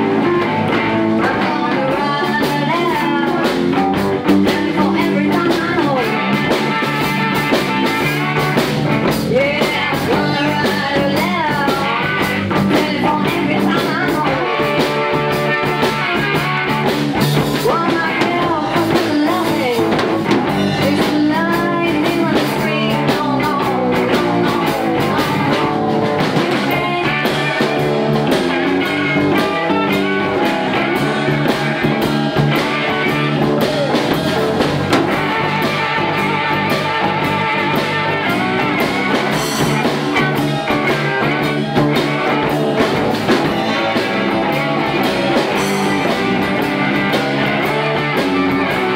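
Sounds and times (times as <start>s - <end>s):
live blues band playing: 0.0s - 48.9s
slide guitar gliding notes: 23.6s - 48.9s.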